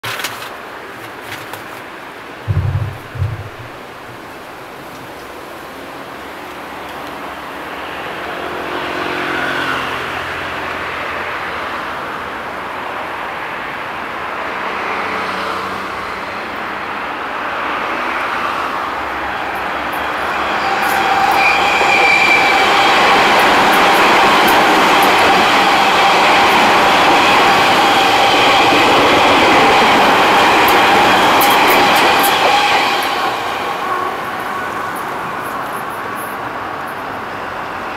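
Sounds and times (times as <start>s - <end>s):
electric train running past: 2.5s - 37.9s
wheels clicking on rail: 19.5s - 37.1s.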